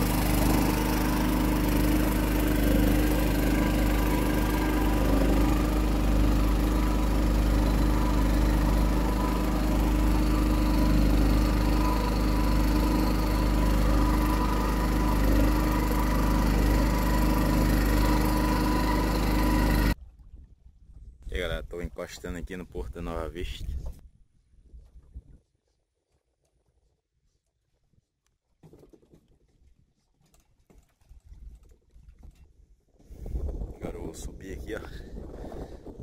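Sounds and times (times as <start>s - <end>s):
boat motor humming: 0.0s - 20.0s.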